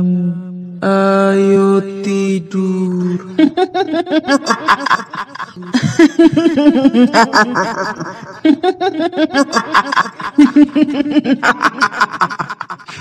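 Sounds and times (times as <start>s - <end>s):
woman cackling high-pitched: 3.4s - 12.9s.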